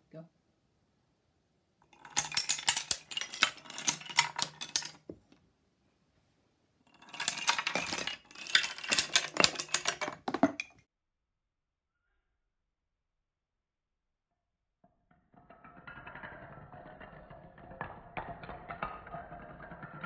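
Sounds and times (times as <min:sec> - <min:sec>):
wooden dominoes clattering: 0:01.9 - 0:05.2, 0:06.9 - 0:10.8, 0:15.6 - 0:20.0.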